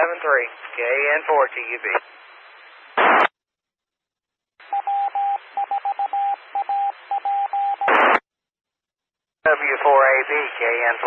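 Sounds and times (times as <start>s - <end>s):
radio carrier hiss: 0.0s - 2.1s, 2.7s - 3.3s, 9.5s - 11.0s
burst of radio static: 0.0s - 3.4s, 7.9s - 8.2s.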